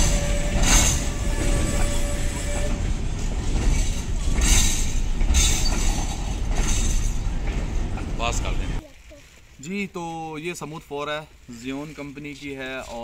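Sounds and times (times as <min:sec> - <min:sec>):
freight train rumbling past: 0:00.0 - 0:08.8.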